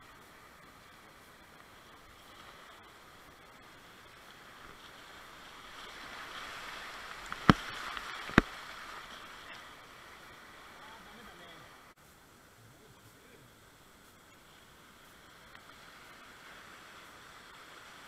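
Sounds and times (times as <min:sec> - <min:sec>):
river rapids rushing: 0:02.8 - 0:12.0.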